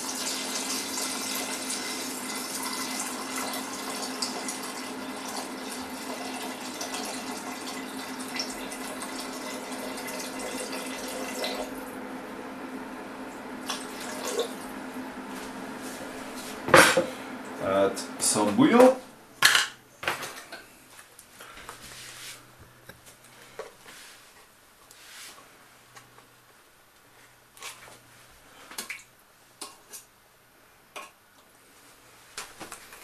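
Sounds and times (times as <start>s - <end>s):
water pouring into pot: 0.0s - 11.7s.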